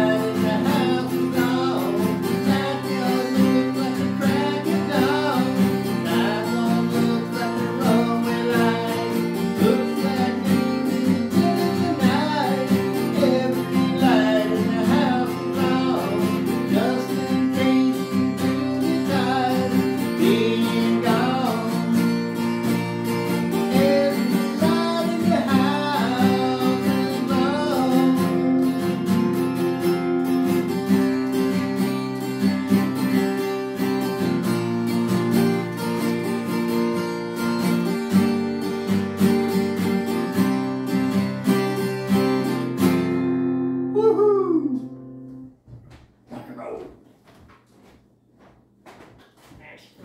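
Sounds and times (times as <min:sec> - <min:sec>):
man singing: 0:00.0 - 0:22.4, 0:23.3 - 0:29.1, 0:43.9 - 0:45.0
acoustic guitar strumming: 0:00.0 - 0:45.6.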